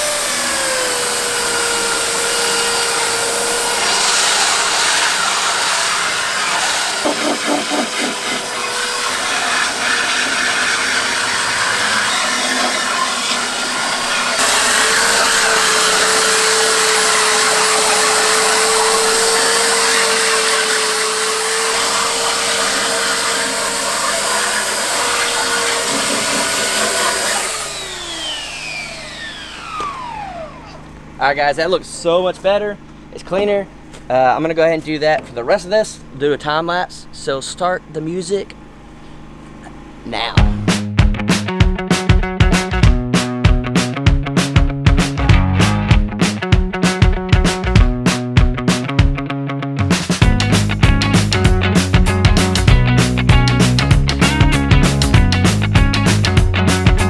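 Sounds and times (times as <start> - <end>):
belt sander grinding metal: 0.0 - 32.2.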